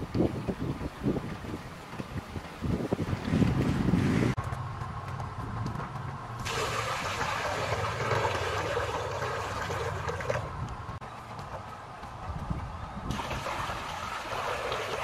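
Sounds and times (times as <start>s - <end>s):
water splashing into a pool: 6.4s - 10.6s, 13.1s - 15.0s.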